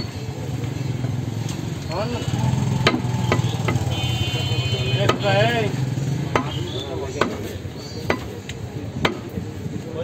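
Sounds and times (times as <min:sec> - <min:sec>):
cleaver chopping meat on wood: 0:02.7 - 0:03.9, 0:05.0 - 0:05.4, 0:06.2 - 0:09.4.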